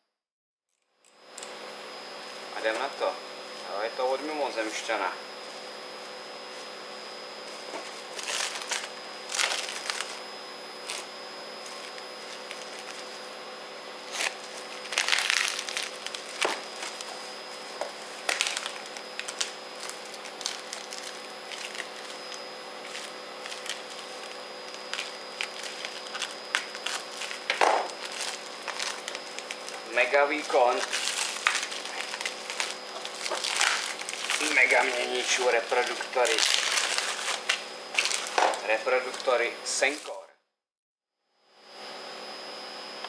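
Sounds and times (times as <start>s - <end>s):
plastic bag crinkling and tearing: 8.0s - 10.2s, 11.7s - 13.2s, 14.1s - 17.2s, 18.1s - 40.1s.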